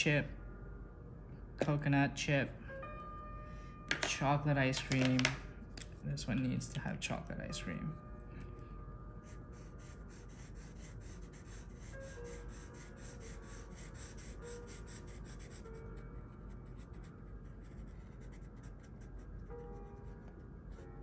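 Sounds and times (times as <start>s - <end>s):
marker rubbing on paper: 9.6s - 15.6s, 16.6s - 19.2s.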